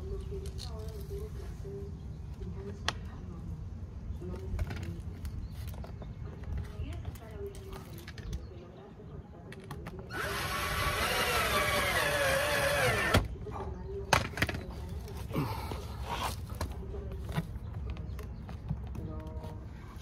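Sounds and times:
drill clicks: 0:10.1 - 0:13.3
power drill driving screw: 0:10.1 - 0:13.3.

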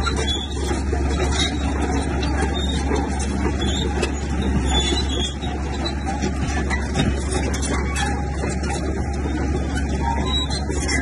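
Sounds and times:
bulldozer diesel engine running: 0:00.0 - 0:11.0.

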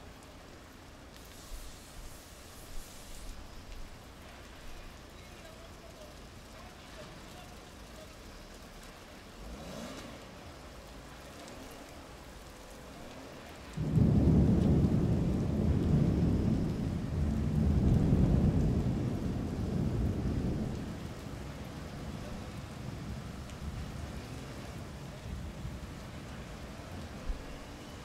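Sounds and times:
steady rain falling: 0:00.0 - 0:28.0
thunderclap rumbling: 0:13.6 - 0:28.0.

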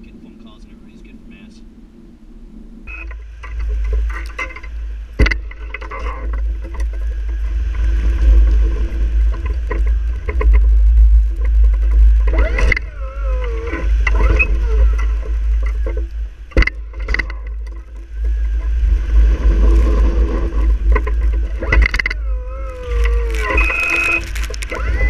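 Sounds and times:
plow blade knocking and scraping: 0:02.9 - 0:25.0
snow plow truck rumbling: 0:02.9 - 0:25.0
squealing and groaning: 0:12.1 - 0:17.6, 0:19.3 - 0:25.0.

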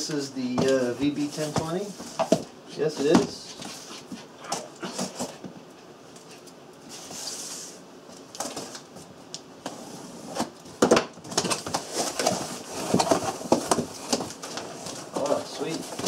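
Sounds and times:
cardboard packaging rustling: 0:10.2 - 0:16.0.

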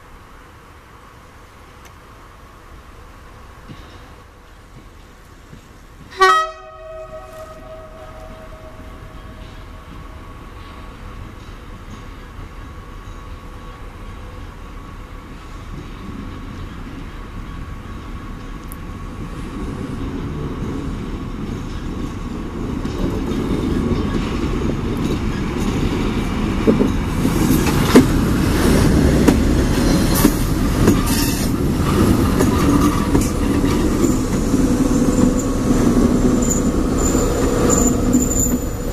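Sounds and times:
diesel train rumble: 0:00.0 - 0:38.9
wheels clicking over rail joints: 0:20.4 - 0:38.9
high-pitched wheel squeal: 0:30.9 - 0:31.6, 0:36.3 - 0:38.9.

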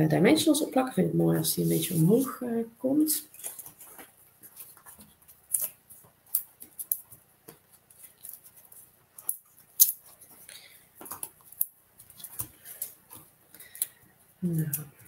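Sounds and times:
paper clicks and rustles: 0:03.3 - 0:14.1.

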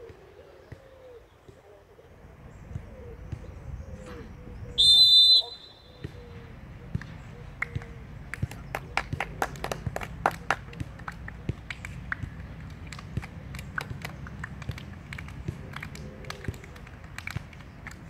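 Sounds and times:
hand claps and slaps: 0:06.9 - 0:18.0.

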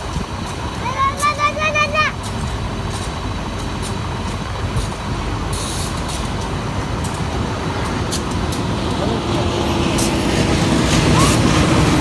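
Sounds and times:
train clicks: 0:00.0 - 0:12.0
train rumbling: 0:00.0 - 0:12.0
short hiss: 0:04.8 - 0:06.4.

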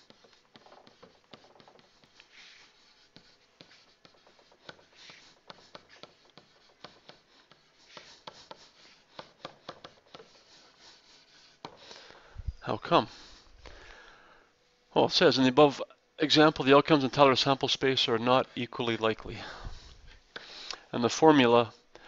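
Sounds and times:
stylus scratching on tablet: 0:00.0 - 0:12.0.

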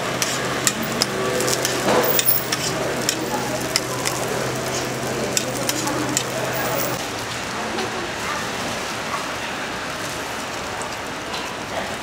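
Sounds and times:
food sizzling in oil: 0:00.0 - 0:07.2.

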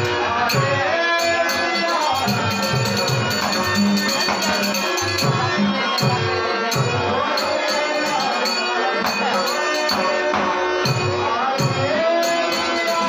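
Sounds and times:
harmonium chords: 0:00.0 - 0:13.0
small hand cymbals struck: 0:01.2 - 0:05.4.

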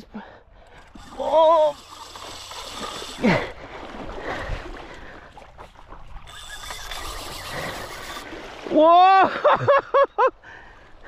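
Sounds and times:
water lapping against a board: 0:00.6 - 0:09.0.

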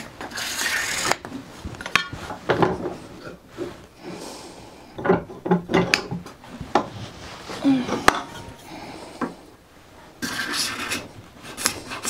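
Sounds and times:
card scraper scraping wood: 0:00.3 - 0:01.2.

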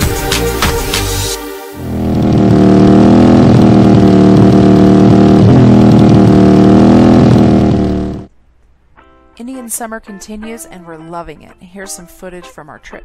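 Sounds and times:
motorcycle engine running: 0:00.0 - 0:08.3.

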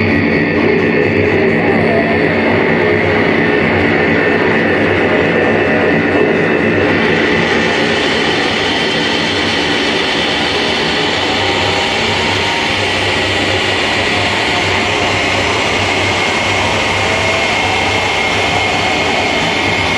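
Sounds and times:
loud techno music: 0:06.8 - 0:19.9.

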